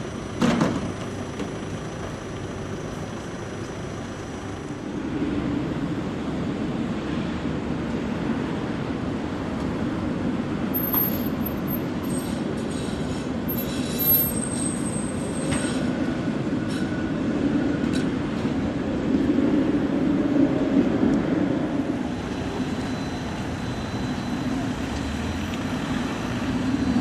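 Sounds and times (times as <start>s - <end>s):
tram rumbling past: 4.8s - 27.0s
steel wheels squealing on rails: 10.7s - 18.0s, 21.9s - 27.0s.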